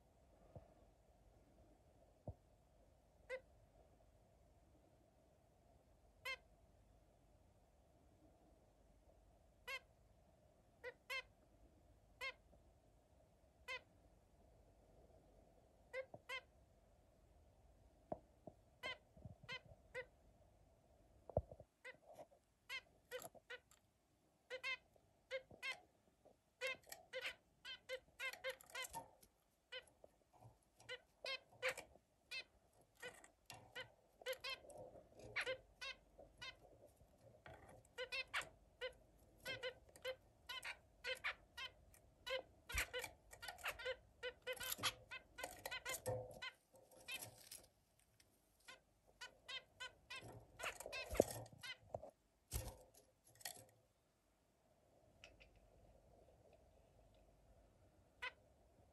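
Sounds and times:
finch chirping: 9.6 - 9.9, 10.8 - 11.3, 18.8 - 20.1, 24.5 - 25.8, 26.6 - 29.9, 30.8 - 36.8, 37.4 - 47.6, 48.6 - 51.8.

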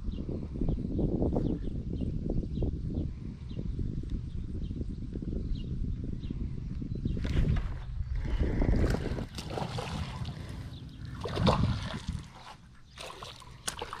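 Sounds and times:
wind rumbling on microphone: 0.0 - 14.0
microphone handling noise: 6.6 - 12.6
fish splashing in water: 8.8 - 14.0.

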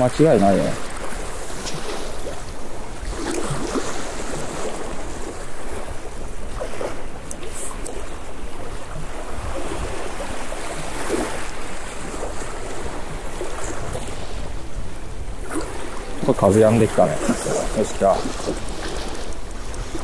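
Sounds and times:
sea waves: 0.0 - 20.0
wind blowing on microphone: 0.0 - 20.0.

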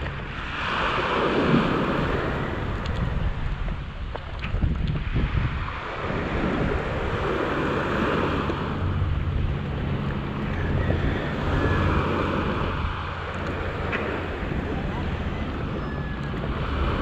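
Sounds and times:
low engine hum: 0.0 - 17.0
waves washing over pebbles: 0.0 - 17.0
wind buffeting microphone: 0.0 - 17.0.

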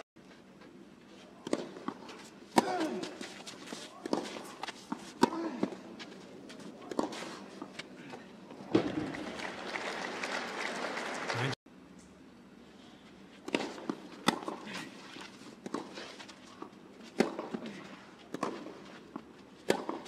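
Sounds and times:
racket striking tennis ball: 1.4 - 9.0, 13.4 - 20.0.

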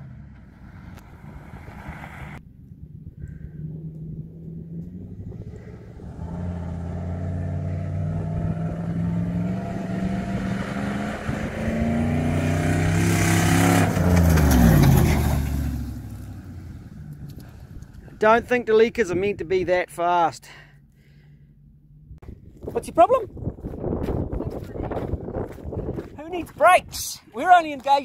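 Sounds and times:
engine accelerating hard: 3.0 - 17.9.

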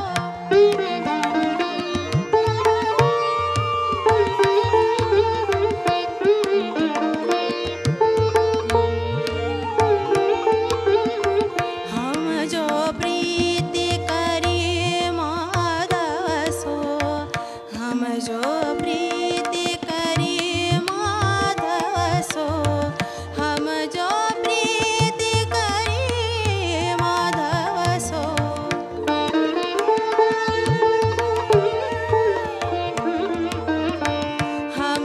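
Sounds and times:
person singing devotional song: 0.0 - 1.4, 11.6 - 31.0, 34.0 - 35.0
harmonium: 0.0 - 35.0
sitar: 0.0 - 35.0
tabla strokes: 0.0 - 35.0.

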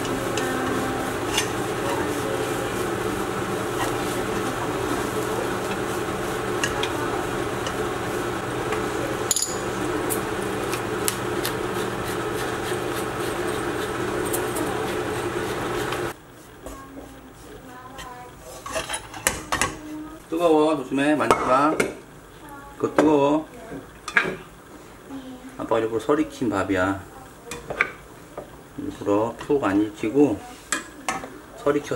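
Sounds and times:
rice sizzling in a wok: 0.0 - 16.6.

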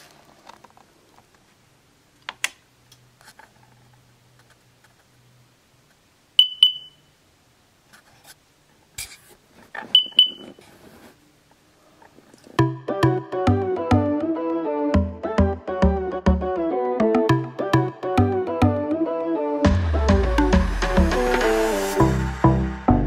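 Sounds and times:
high double beeps: 6.4 - 7.1, 10.0 - 10.6.

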